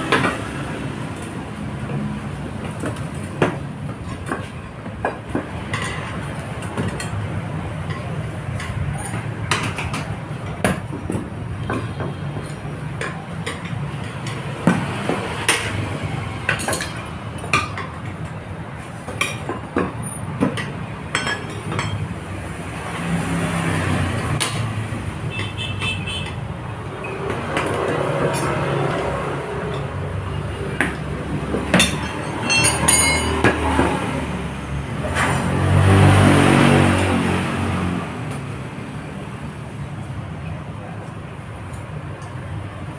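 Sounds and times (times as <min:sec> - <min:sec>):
tools knocking and clicking: 0:07.8 - 0:18.4, 0:24.3 - 0:34.2
ringing metal clinks: 0:31.9 - 0:33.4.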